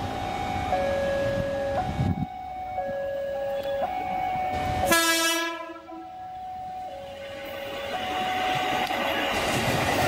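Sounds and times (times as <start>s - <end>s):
passing train rail noise: 0.0s - 10.0s
two-tone electronic warning signal: 0.1s - 9.3s
train horn blast: 4.6s - 6.1s.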